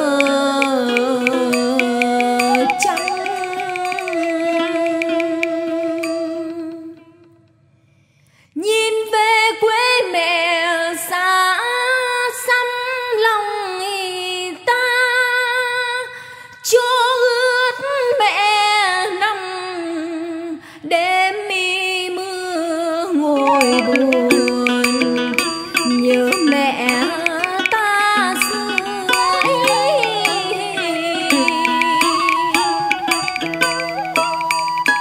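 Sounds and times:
held accompanying note: 0.0 - 7.2, 23.4 - 35.0
woman singing with vibrato: 0.0 - 7.2, 8.6 - 35.0.

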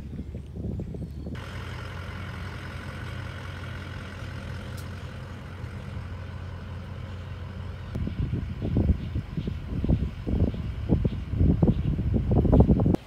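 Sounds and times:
engine idling: 1.3 - 13.0.

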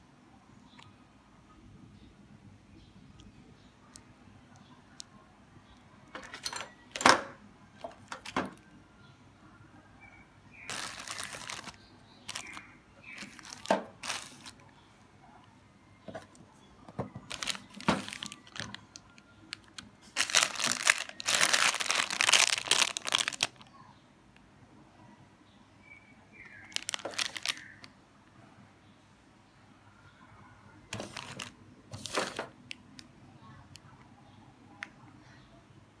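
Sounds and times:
plastic bags crinkling: 10.6 - 14.6, 17.2 - 23.7, 26.5 - 27.9, 31.0 - 32.5.

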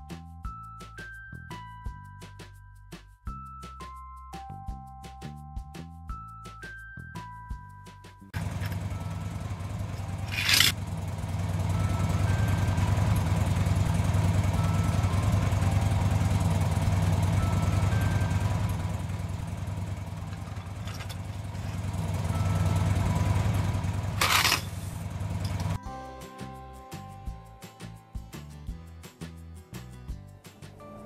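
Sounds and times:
low engine rumble: 8.4 - 25.8.

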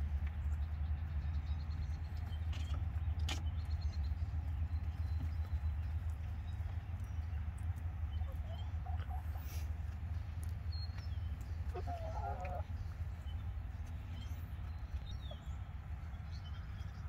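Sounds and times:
steady low rumble: 0.0 - 17.0
hens clucking: 4.3 - 16.0.

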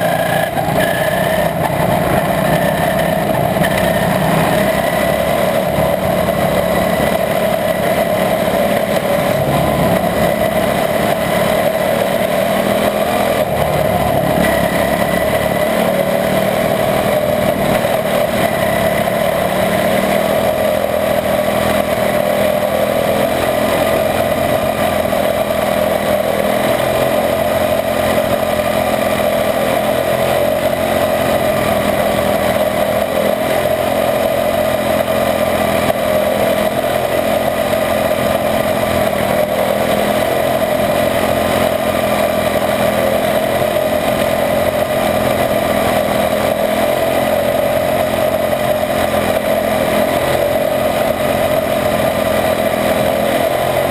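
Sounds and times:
race car engine running: 0.0 - 53.9.

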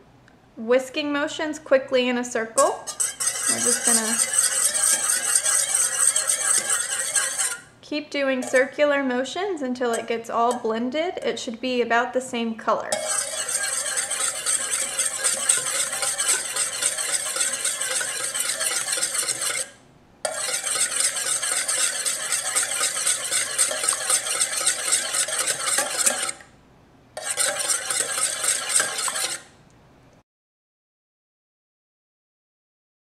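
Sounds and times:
whisk beating in a metal bowl: 2.8 - 7.7, 8.4 - 8.8, 9.9 - 10.8, 12.9 - 26.5, 27.2 - 29.5.

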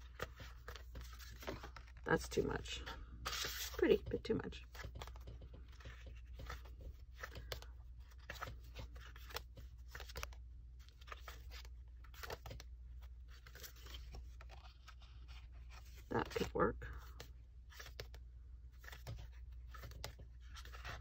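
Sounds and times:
paper sheets shuffling: 0.0 - 21.0.

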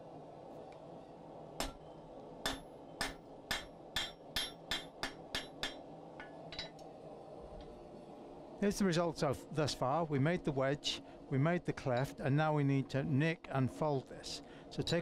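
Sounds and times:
hammer striking steel on anvil: 1.6 - 1.8, 2.4 - 6.8.

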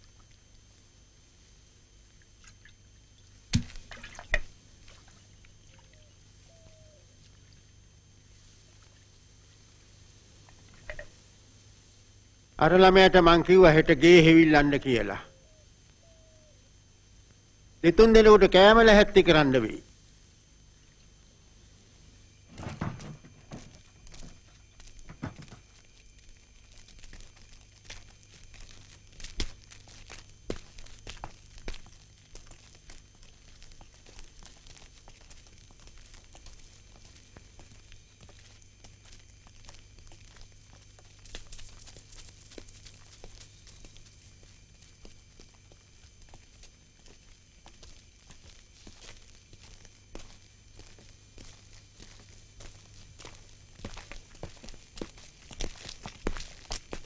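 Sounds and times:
steady low hum: 0.0 - 57.0
footsteps: 22.5 - 57.0.

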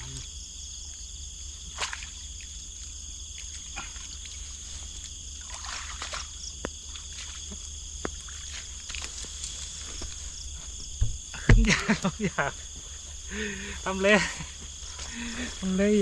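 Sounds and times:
insects chorus: 0.0 - 16.0
water splashing: 3.3 - 10.4.

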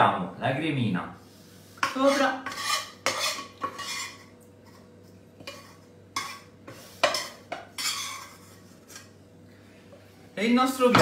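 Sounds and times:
spoon scraping frying pan: 1.7 - 9.2.

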